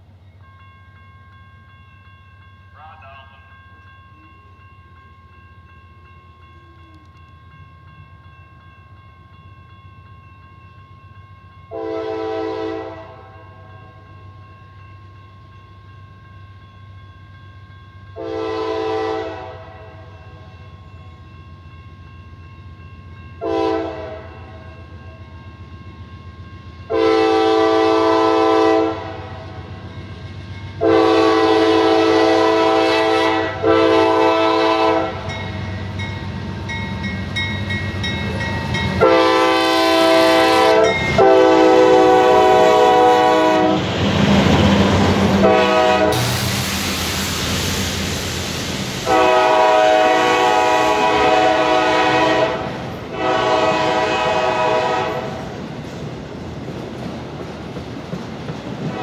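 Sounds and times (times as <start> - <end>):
train rumbling past: 0.0 - 59.0
locomotive air horn blasts: 11.7 - 13.3, 18.2 - 20.0, 23.4 - 24.5, 26.9 - 29.4, 30.8 - 35.3, 39.0 - 43.8, 45.4 - 46.5, 49.0 - 55.4.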